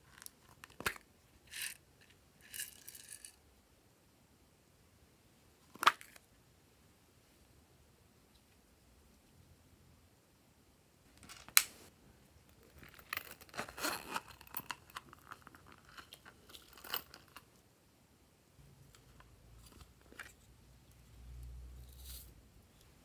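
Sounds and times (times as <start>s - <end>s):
crackling and crinkling: 11.1s - 17.6s, 18.8s - 22.9s.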